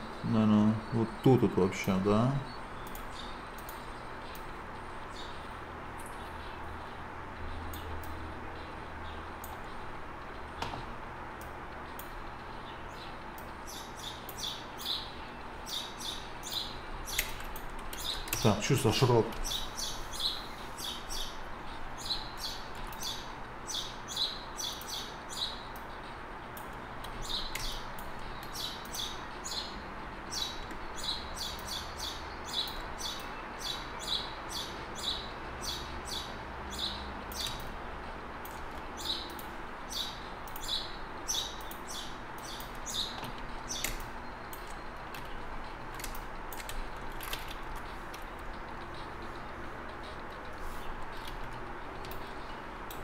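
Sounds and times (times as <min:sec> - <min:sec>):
low room hum: 0:00.0 - 0:53.0
computer mouse clicking: 0:02.8 - 0:04.5, 0:37.3 - 0:37.8, 0:40.4 - 0:40.7, 0:42.4 - 0:48.3, 0:51.1 - 0:52.3.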